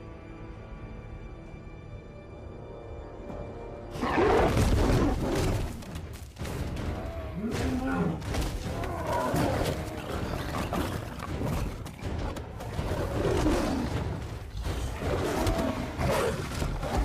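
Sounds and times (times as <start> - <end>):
tense background music: 0.0 - 17.0
big cat roar: 7.0 - 11.3, 12.7 - 17.0.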